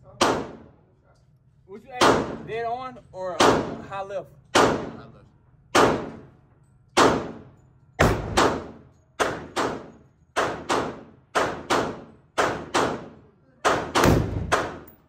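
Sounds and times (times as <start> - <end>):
gunshots echoing indoors: 0.2 - 0.8, 2.0 - 2.4, 3.4 - 3.9, 4.5 - 5.1, 5.7 - 15.0.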